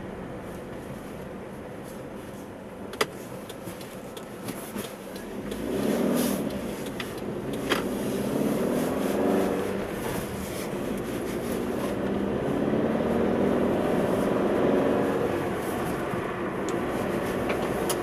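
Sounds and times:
road noise inside car: 0.0 - 18.0
car engine accelerating: 4.8 - 18.0.

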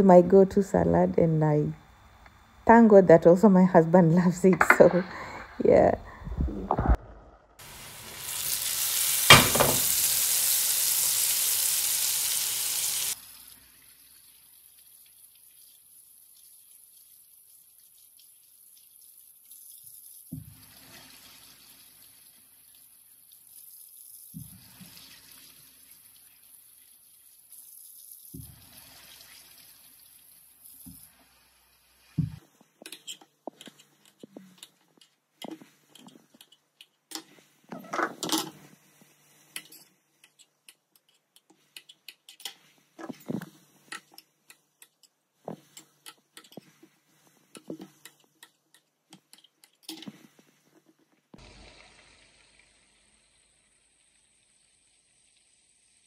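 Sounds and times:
chicken deep-frying in oil: 7.6 - 33.1, 51.4 - 56.0.

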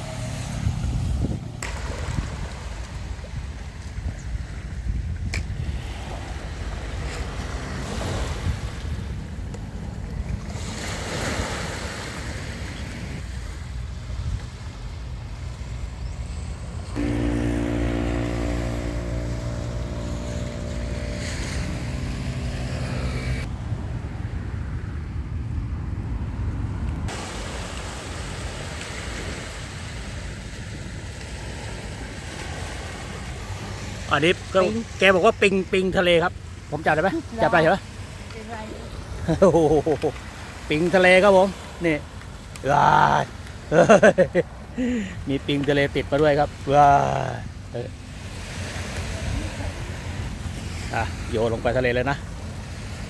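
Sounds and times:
wind on microphone: 0.0 - 11.4
waves washing on sandy beach: 0.0 - 15.6, 17.0 - 23.8, 27.0 - 53.0
steady multi-tone hum: 16.4 - 23.5.

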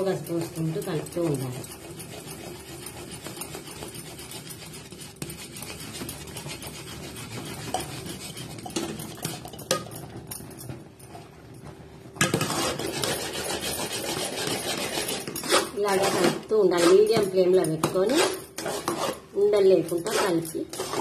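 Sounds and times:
metal spoon scraping pot: 0.0 - 10.8, 12.2 - 21.0.

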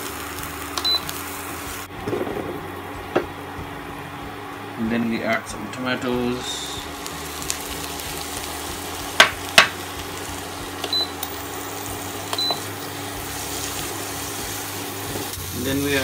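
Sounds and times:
vegetables sizzling in a frying pan: 0.0 - 16.0
steady hum: 1.1 - 14.9
sharp knocks: 2.0 - 3.3.

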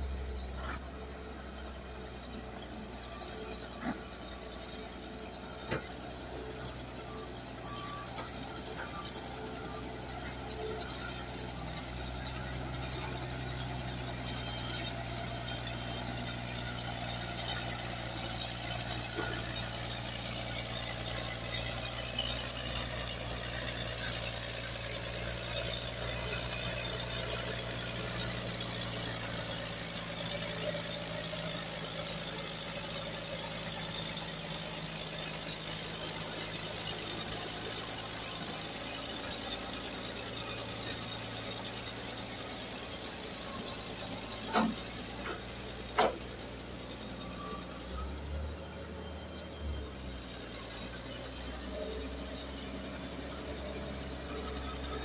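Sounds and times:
bulldozer diesel engine running: 0.0 - 55.0.

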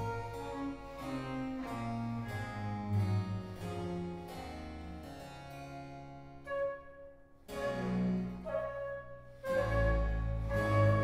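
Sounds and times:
harpsichord chords: 0.0 - 11.0
low bowed strings: 0.0 - 11.0
flute sustained note: 6.5 - 11.0.

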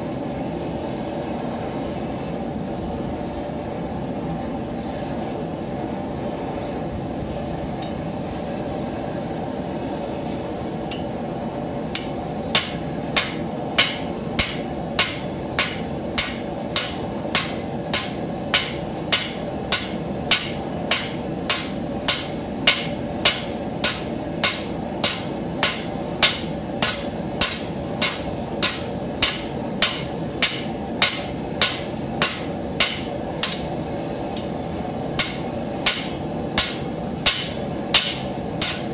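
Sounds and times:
gas forge burner roaring: 0.0 - 38.9
hammer striking steel on anvil: 11.9 - 34.5, 35.2 - 38.9.

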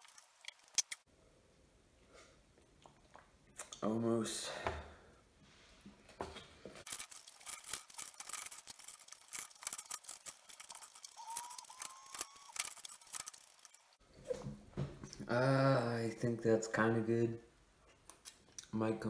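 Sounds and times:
utensil scraping watermelon rind: 6.8 - 13.8.

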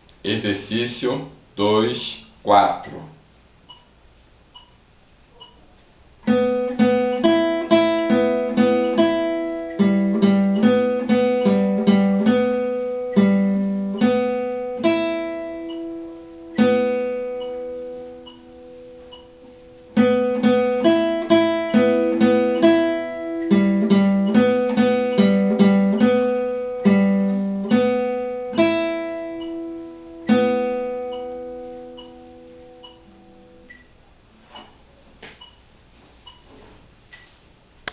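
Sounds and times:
classical guitar fingerstyle: 6.3 - 33.4.

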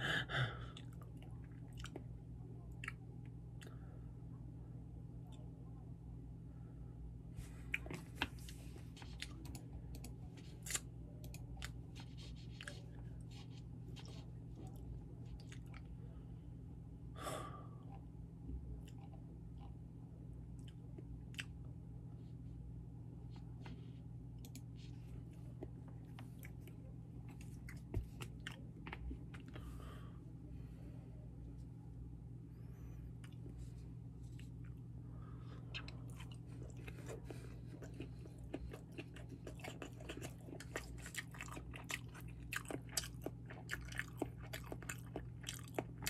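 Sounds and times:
person chewing: 7.5 - 15.9, 20.6 - 21.6, 25.3 - 29.9, 35.6 - 46.0.

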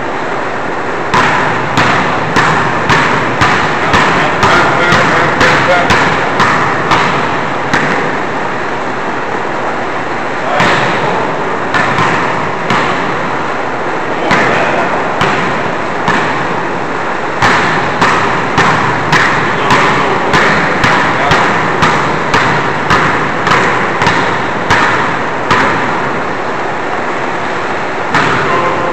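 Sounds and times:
basketballs bouncing on hardwood: 1.1 - 8.2, 10.5 - 13.4, 14.2 - 16.7, 17.4 - 26.2, 28.1 - 28.8.

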